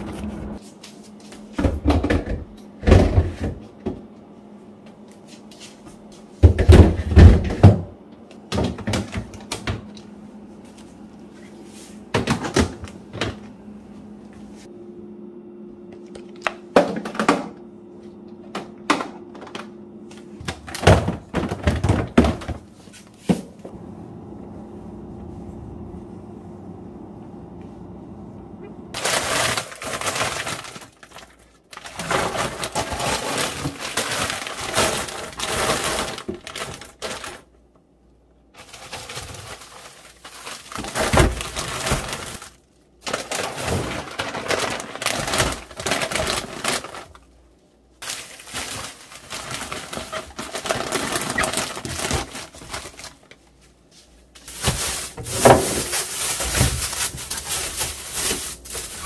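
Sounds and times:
packages set down knocking: 20.4s - 22.7s
plastic bags rustling: 28.9s - 37.6s, 38.5s - 59.0s.

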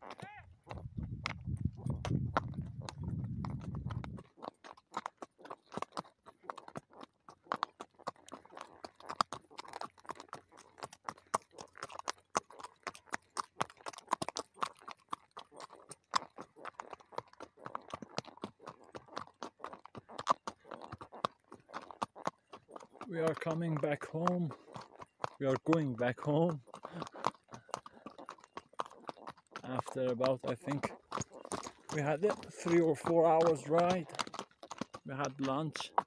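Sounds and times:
horse hooves on stony track: 0.0s - 36.0s
wind rumble on microphone: 0.7s - 4.2s.

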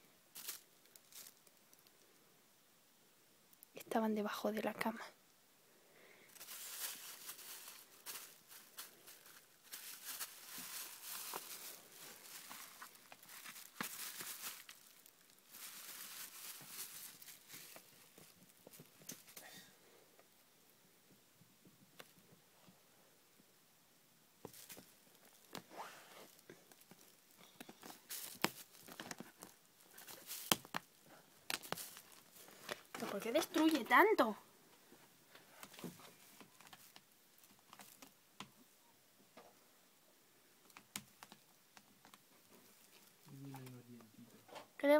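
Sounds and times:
plastic bag crinkling: 0.3s - 2.0s, 6.3s - 19.4s, 24.4s - 25.7s, 26.3s - 34.4s, 35.6s - 38.2s.

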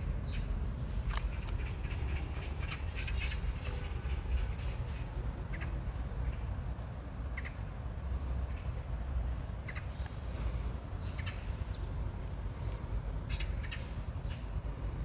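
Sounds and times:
harsh bird calls: 0.0s - 6.5s, 9.5s - 15.0s.

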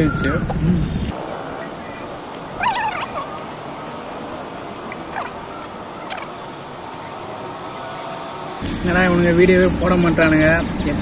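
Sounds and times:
outdoor background noise: 0.0s - 11.0s
faint high chirps: 1.2s - 8.6s
high wavering animal cry: 1.2s - 8.6s.

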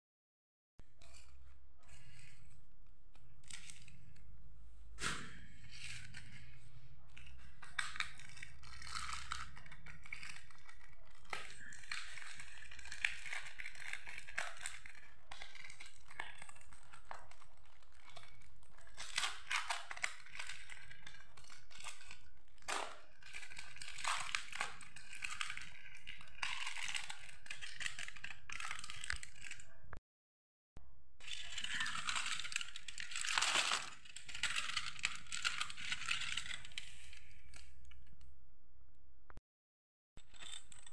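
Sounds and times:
aluminium foil crinkling: 5.7s - 29.8s, 31.2s - 38.2s.

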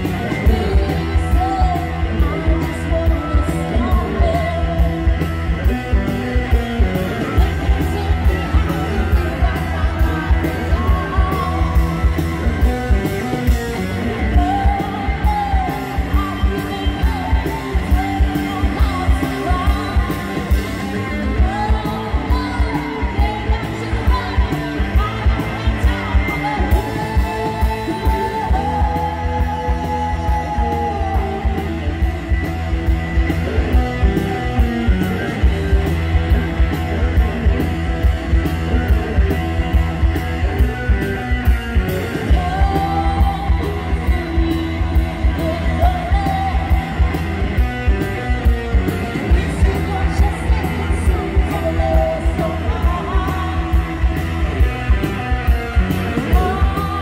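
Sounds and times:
female lead vocal: 0.0s - 32.9s, 41.9s - 57.0s
live rock band playing: 0.0s - 57.0s
steady drum beat: 0.0s - 57.0s.

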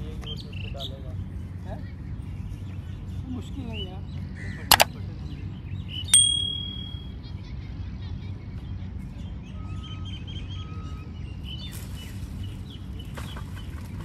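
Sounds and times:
outdoor background noise: 0.0s - 14.0s
sharp click: 6.2s - 7.0s
short high ringing tone: 6.2s - 7.1s.

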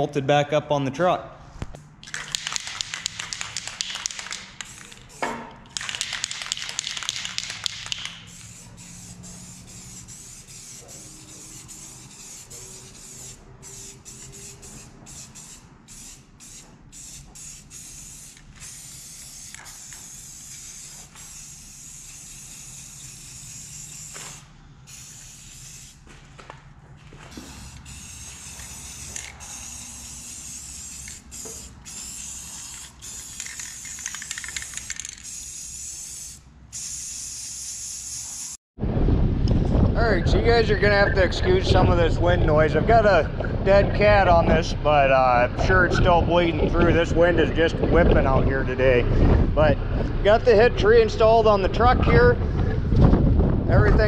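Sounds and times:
spray paint can hissing: 2.0s - 26.1s, 27.3s - 38.6s.

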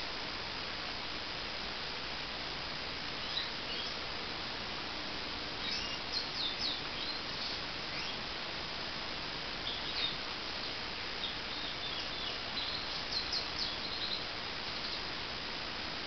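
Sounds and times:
steady background hiss: 0.0s - 16.0s
bird twittering: 5.6s - 8.2s.

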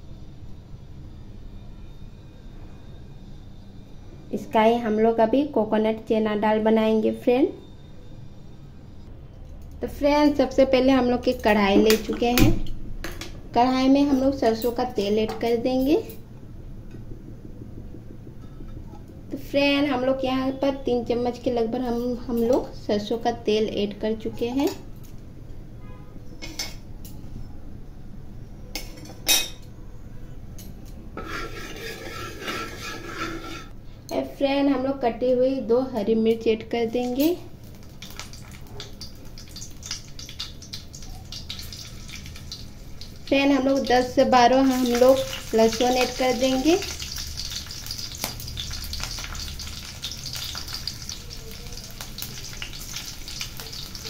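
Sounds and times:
garlic and chilli sizzling in oil: 13.5s - 16.1s, 31.2s - 33.8s, 34.9s - 54.0s
ladle scraping a pan: 31.2s - 33.8s
oil popping and crackling: 37.6s - 54.0s.

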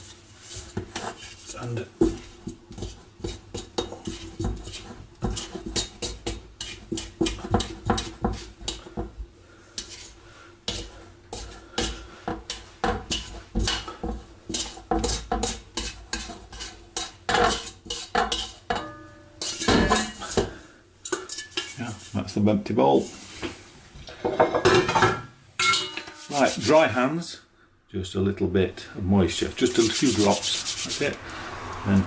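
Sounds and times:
spatula scraping metal bowl: 0.0s - 9.0s, 9.8s - 22.2s, 26.0s - 26.9s, 29.4s - 31.2s.

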